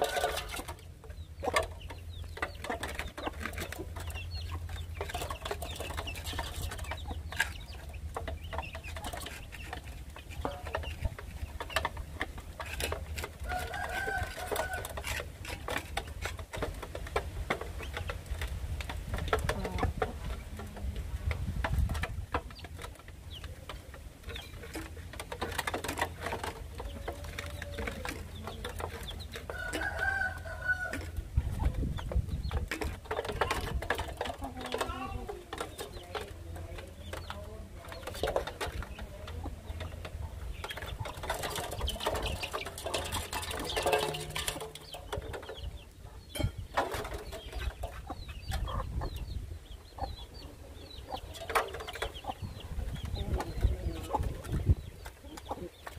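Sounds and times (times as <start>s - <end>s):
beaks tapping on metal: 32.0s - 49.3s.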